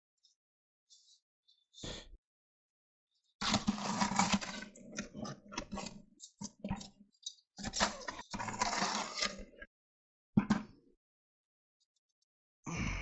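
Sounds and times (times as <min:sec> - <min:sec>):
trowel scraping wet concrete: 0:03.4 - 0:04.6, 0:07.6 - 0:09.5.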